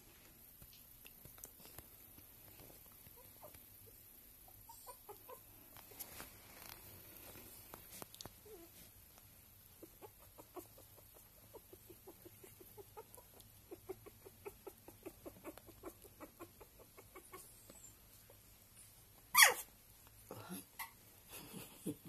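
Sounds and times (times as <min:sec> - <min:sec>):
puppy grunting softly: 0:09.7 - 0:18.4.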